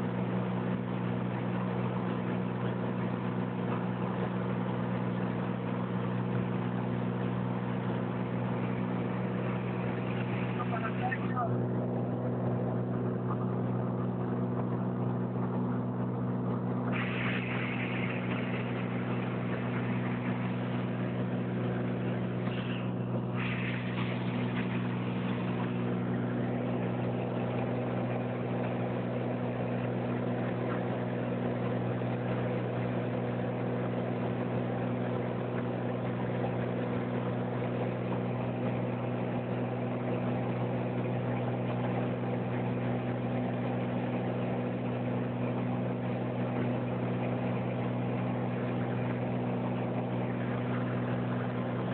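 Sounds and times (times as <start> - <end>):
small plane engine droning: 0.0 - 51.9.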